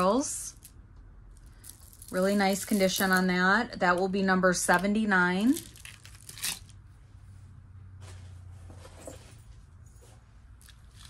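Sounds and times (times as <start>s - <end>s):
low steady hum: 0.0s - 11.0s
necklace beads clicking: 0.5s - 3.2s, 5.5s - 6.7s.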